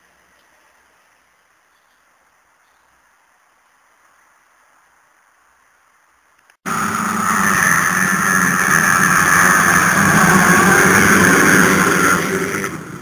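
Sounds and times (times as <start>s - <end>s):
motocross bikes revving: 6.7s - 13.0s.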